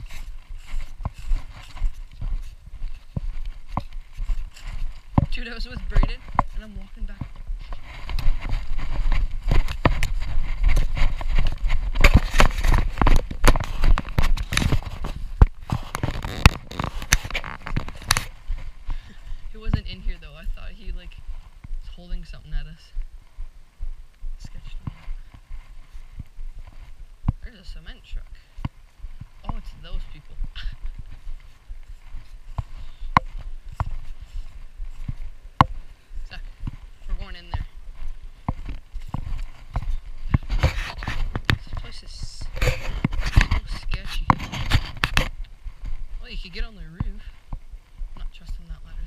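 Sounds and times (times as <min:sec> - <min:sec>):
footsteps through dry leaves: 0:00.0 - 0:21.8, 0:24.6 - 0:47.4
wind rumble on microphone: 0:00.0 - 0:49.0
camera handling noise: 0:09.5 - 0:18.4.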